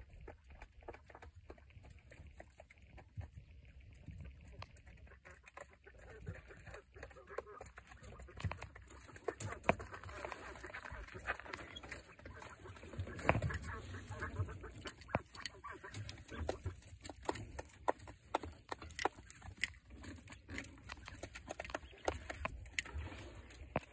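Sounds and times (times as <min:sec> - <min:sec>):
beaks pecking at a tray: 0:00.0 - 0:23.9
quail calling: 0:05.0 - 0:23.9.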